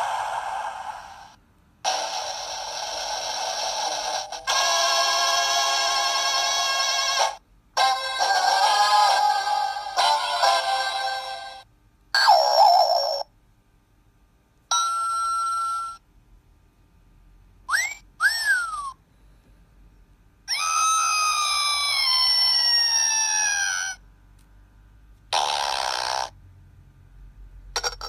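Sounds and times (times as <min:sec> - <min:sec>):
downward sliding whistle: 0:17.7 - 0:19.0.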